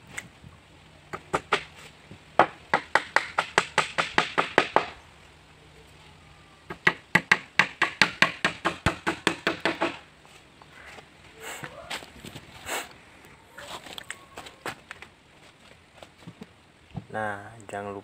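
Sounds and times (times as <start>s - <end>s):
hammer driving nails into wood: 6.7s - 10.0s.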